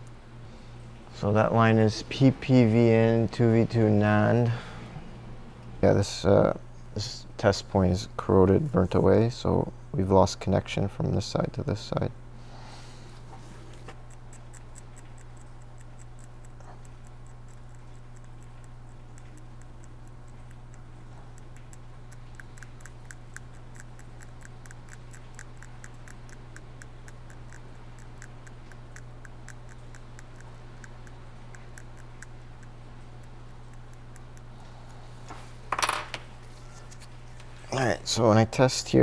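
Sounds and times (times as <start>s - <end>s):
steady low hum: 0.0s - 39.0s
blade scraping ticks: 14.0s - 35.1s.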